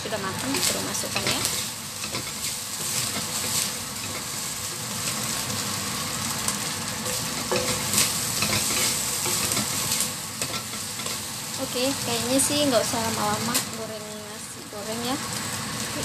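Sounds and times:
rice sizzling in a wok: 0.0 - 16.0
wooden spatula scraping a pan: 7.1 - 11.2.

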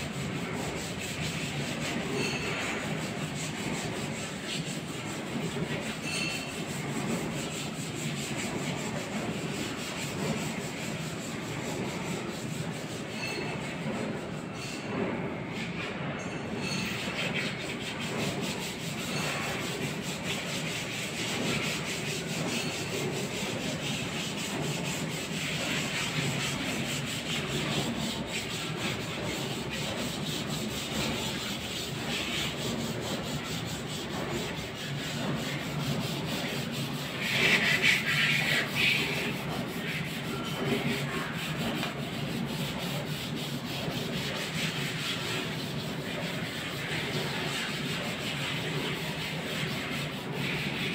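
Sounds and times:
harsh rasp: 16.6 - 50.9.

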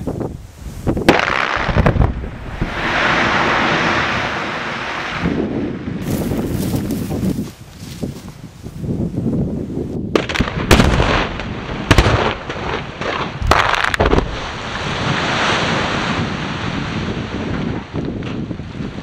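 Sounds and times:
explosive blast bangs: 10.1 - 16.7
rock face collapsing rush: 12.5 - 17.6.

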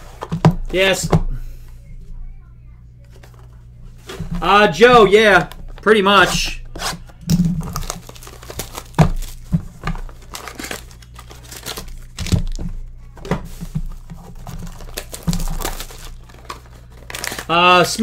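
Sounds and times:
packaging crinkling and tearing: 7.6 - 12.6, 13.6 - 18.0.

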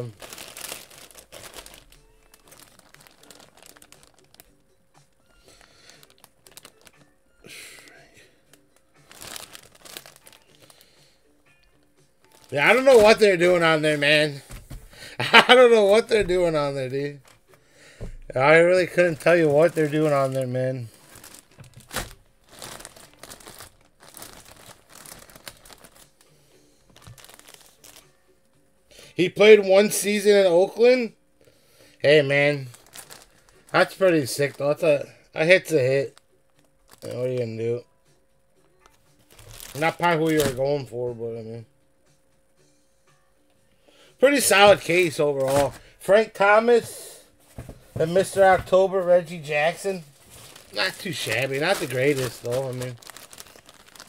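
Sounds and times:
plastic bag crinkling: 0.0 - 4.6, 5.4 - 7.0, 7.7 - 10.9, 12.2 - 14.4, 18.4 - 26.2, 26.9 - 28.1, 32.3 - 34.9, 36.8 - 37.5, 39.3 - 40.8, 44.3 - 46.2, 48.0 - 54.0
faint background music: 0.0 - 54.0.

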